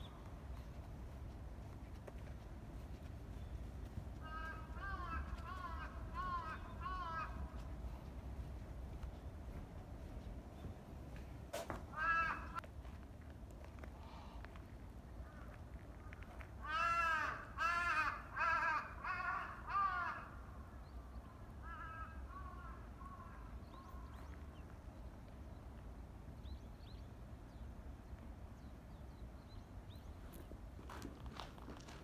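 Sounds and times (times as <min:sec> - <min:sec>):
crow cawing: 0:04.2 - 0:07.6, 0:11.9 - 0:12.6, 0:16.6 - 0:20.4, 0:21.6 - 0:24.1.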